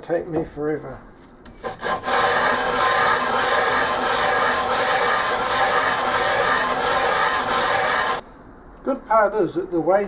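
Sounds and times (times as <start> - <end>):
metal scraping on sandpaper: 1.6 - 8.2.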